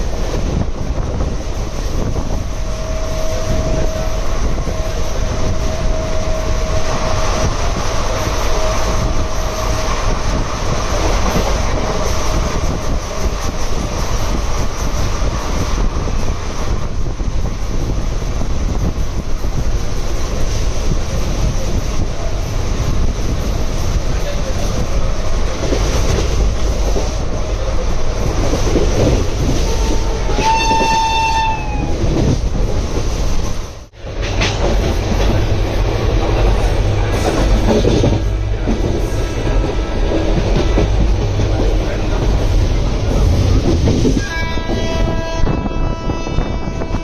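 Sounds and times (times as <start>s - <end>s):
train wheels clattering on rails: 0.0s - 47.0s
wind: 0.0s - 47.0s
locomotive horn: 29.6s - 32.0s, 44.2s - 47.0s.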